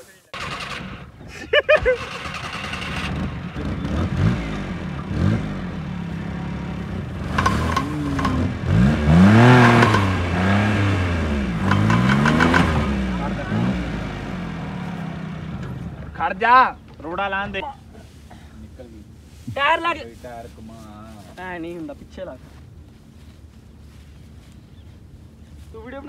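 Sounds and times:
car engine revving: 0.4 - 1.2, 1.8 - 17.5.

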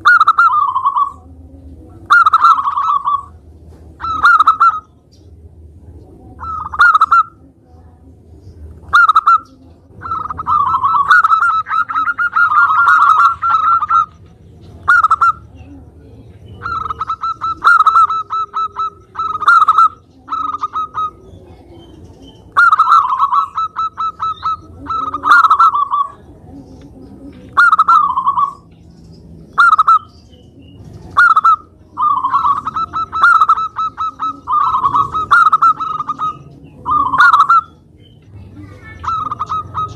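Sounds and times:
dove cooing: 0.0 - 5.0, 6.4 - 7.5, 8.8 - 39.9.

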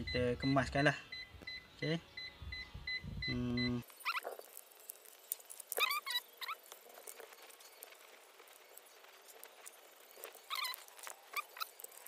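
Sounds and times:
short electronic beeps: 0.0 - 4.2.

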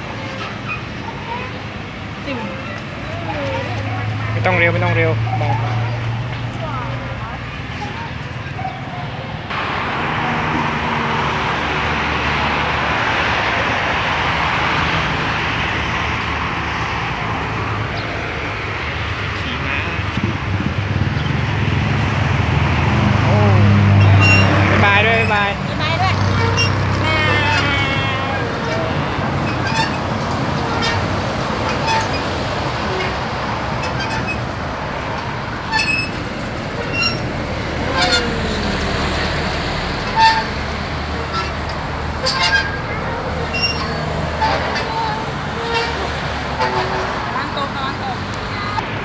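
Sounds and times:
rushing road traffic: 0.0 - 49.0
faint short squeaks: 24.0 - 25.5, 26.3 - 30.0, 30.6 - 32.2, 33.8 - 34.4, 35.6 - 36.2, 36.8 - 37.3, 37.9 - 38.4, 40.0 - 40.6, 41.2 - 47.2.

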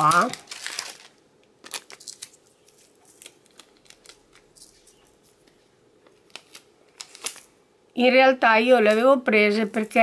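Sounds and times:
plastic packets crinkling and clicking: 0.0 - 7.5.

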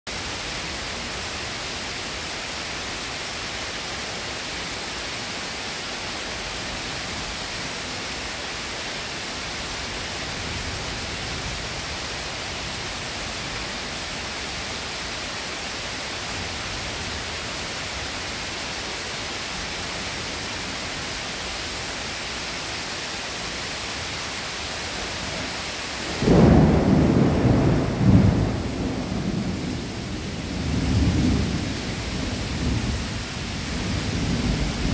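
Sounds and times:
steady rain hiss: 0.1 - 34.9
thunder clap and rumble: 26.1 - 34.9.

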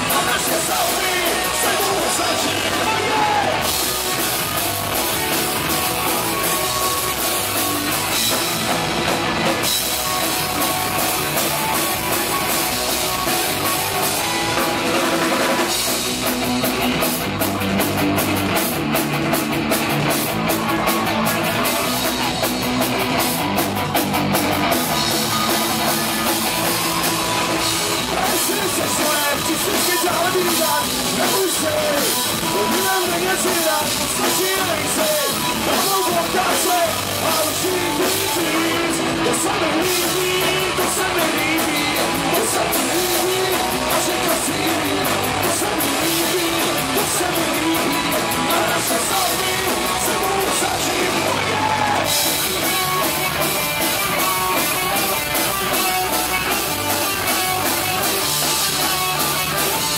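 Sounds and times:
man singing: 0.0 - 3.8, 28.0 - 53.3
punk rock band playing: 0.0 - 59.9.

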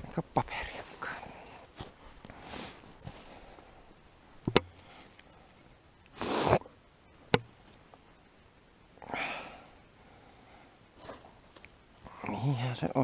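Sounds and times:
person sniffing sharply: 6.2 - 6.6.

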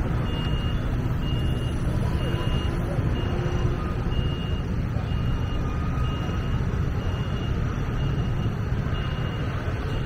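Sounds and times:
street traffic rumbling: 0.0 - 10.0
high electronic beep: 0.1 - 10.0.

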